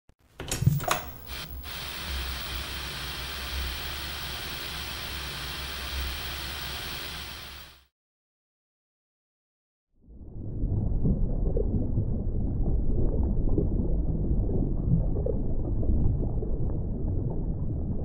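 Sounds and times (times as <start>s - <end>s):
television static hiss: 0.8s - 7.9s
low rumble: 10.1s - 18.0s.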